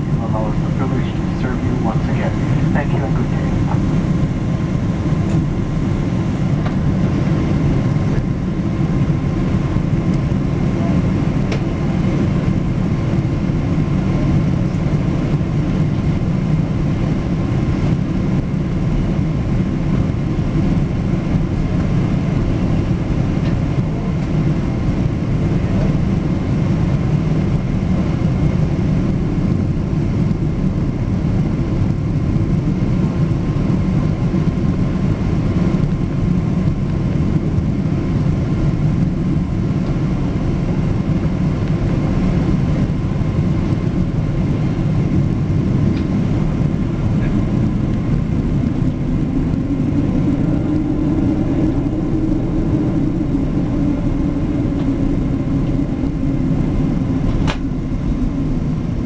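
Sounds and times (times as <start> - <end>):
faint high whine: 0.0 - 15.3
low rumble of aircraft engines: 0.0 - 59.0.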